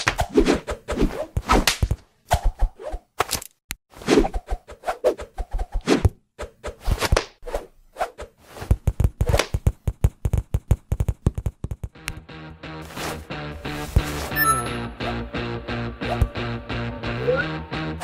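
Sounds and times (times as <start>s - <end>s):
cartoon clicks and taps: 8.8s - 12.3s.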